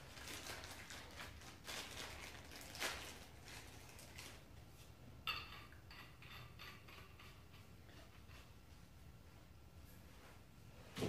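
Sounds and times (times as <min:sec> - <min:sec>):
plastic packaging crinkling: 0:00.0 - 0:04.5
metal pipe fittings clicking: 0:05.3 - 0:08.6.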